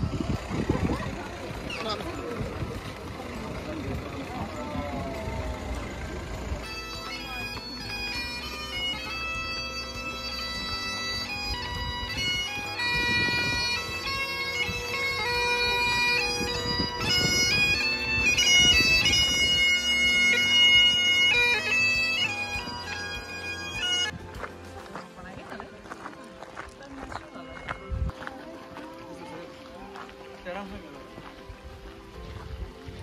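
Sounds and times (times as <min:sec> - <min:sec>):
bagpipes playing over drone: 0:00.0 - 0:32.7.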